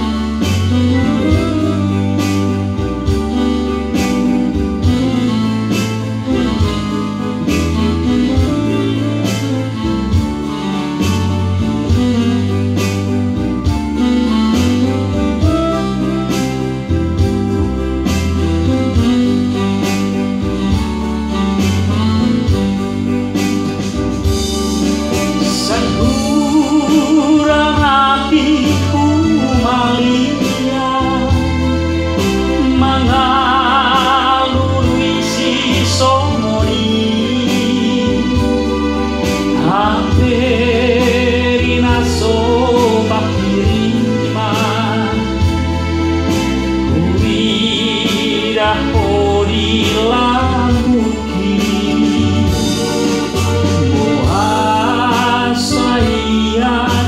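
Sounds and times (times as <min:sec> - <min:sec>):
keyboard chords with rhythm backing: 0:00.0 - 0:57.0
man singing with vibrato: 0:24.3 - 0:57.0.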